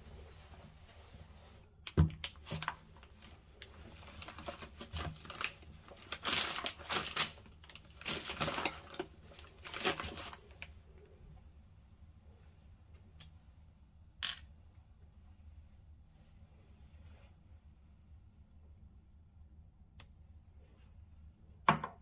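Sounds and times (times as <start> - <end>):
cloth bag rustling and crinkling: 0.0 - 10.7.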